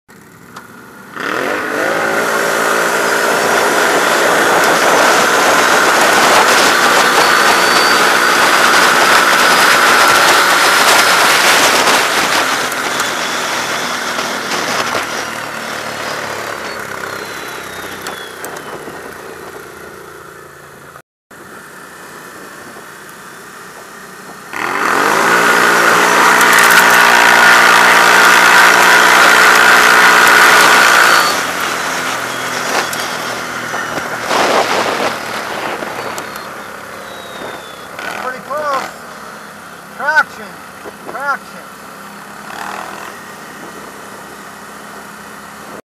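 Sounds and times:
atv engines accelerating: 0.1s - 45.8s
rushing noise: 1.3s - 18.9s.

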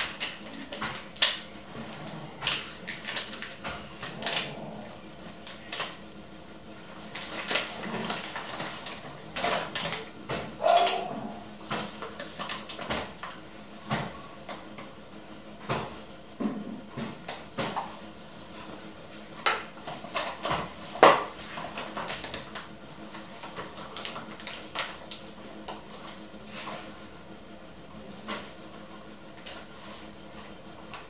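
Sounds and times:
kitchen utensils clinking: 10.6s - 11.1s.

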